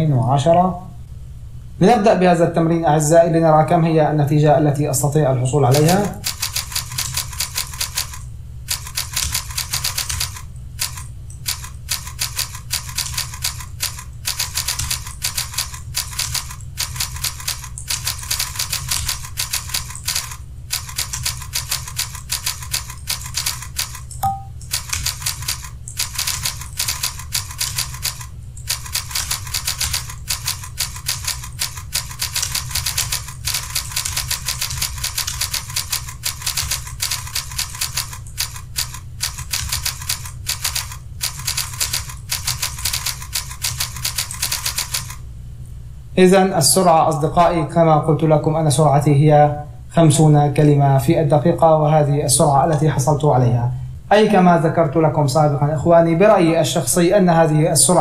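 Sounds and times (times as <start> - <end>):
computer keyboard typing: 5.7 - 45.2.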